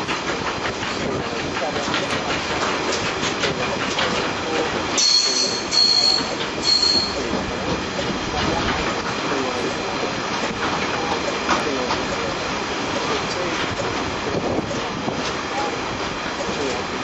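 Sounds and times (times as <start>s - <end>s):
train rail noise: 0.0s - 17.0s
high-pitched wheel squeals: 5.0s - 7.3s.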